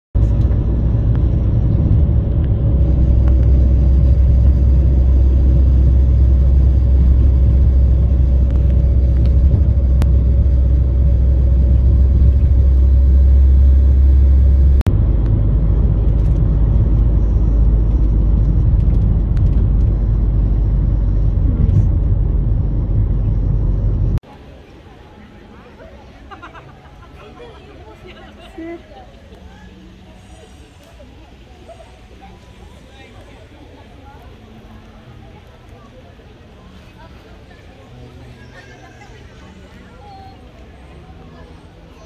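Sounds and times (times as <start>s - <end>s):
car cabin road and engine rumble: 0.2s - 24.2s.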